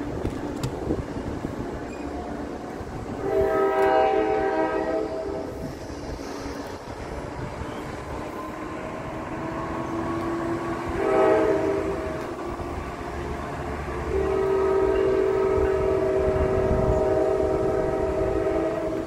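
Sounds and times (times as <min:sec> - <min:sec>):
low rail rumble: 0:00.0 - 0:19.0
train horn blasts: 0:03.0 - 0:05.7, 0:07.6 - 0:19.0.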